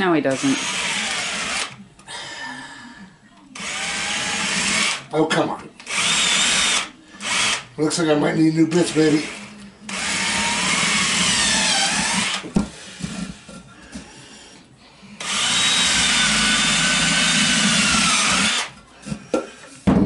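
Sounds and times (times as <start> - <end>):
cordless drill into wood: 0.3 - 1.8, 3.6 - 5.0, 5.9 - 7.6, 8.9 - 12.4, 15.2 - 18.7.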